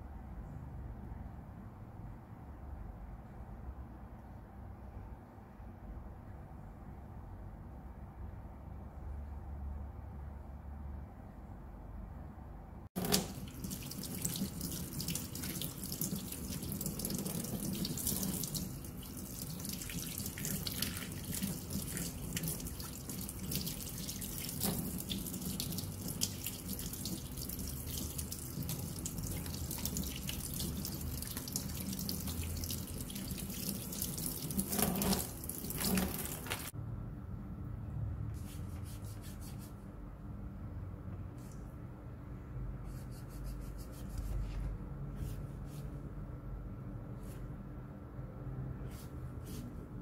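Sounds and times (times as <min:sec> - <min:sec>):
tap water running into sink: 0:13.0 - 0:36.7.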